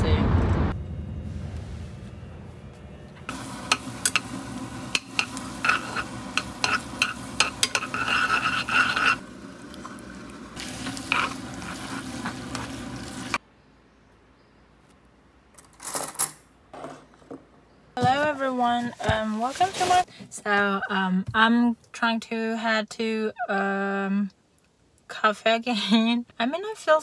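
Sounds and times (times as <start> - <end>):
pasta sizzling in frying pan: 3.3 - 13.4
tongs scraping pan: 3.7 - 9.3, 10.7 - 12.8.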